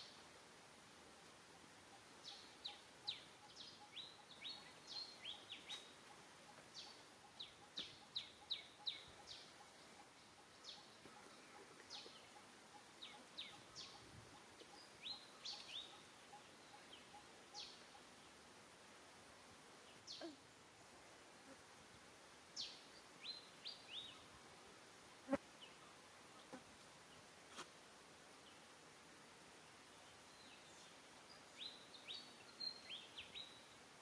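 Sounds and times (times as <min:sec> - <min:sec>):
small birds chirping: 0:02.0 - 0:18.3, 0:29.9 - 0:33.8.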